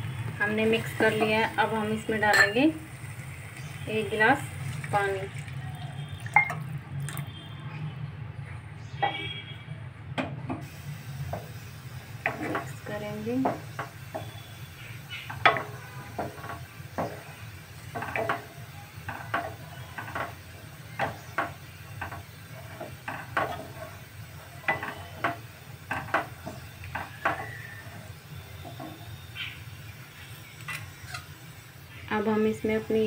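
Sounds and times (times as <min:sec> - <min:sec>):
wooden spatula scraping metal pan: 0:17.9 - 0:18.5, 0:21.0 - 0:24.0.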